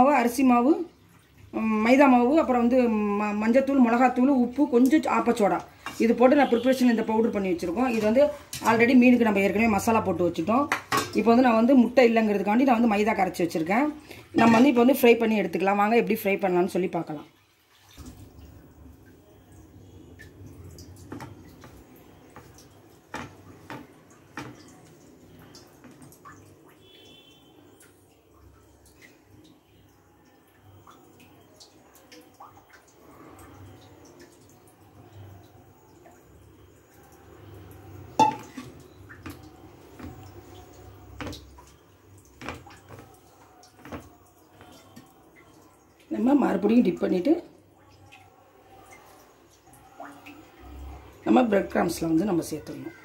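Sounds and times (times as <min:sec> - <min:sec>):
clink against metal bowl: 0:38.2 - 0:38.6.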